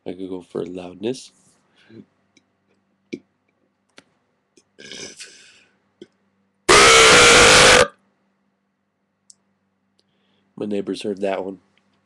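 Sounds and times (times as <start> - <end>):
man burping loudly: 4.8 - 5.3, 6.7 - 7.9.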